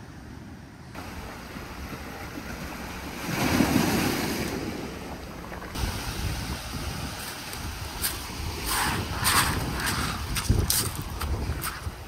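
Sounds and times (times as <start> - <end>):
wind buffeting microphone: 1.0 - 12.0
waves washing onto pebble beach: 5.7 - 12.0.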